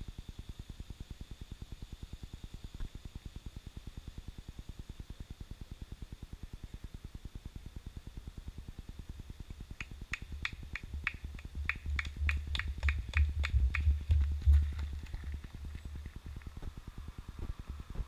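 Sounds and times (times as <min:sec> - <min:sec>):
running footsteps: 0:10.7 - 0:16.8.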